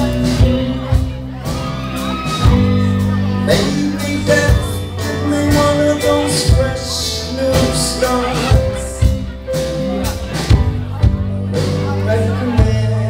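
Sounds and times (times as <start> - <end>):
drum hits: 0.0 - 7.0
live rock band playing: 0.0 - 13.0.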